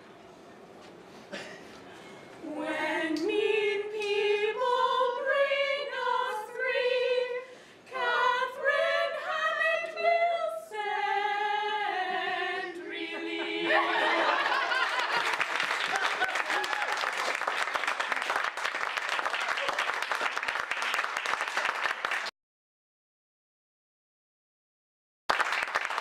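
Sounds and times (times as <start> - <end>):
women singing a cappella: 2.4 - 14.9.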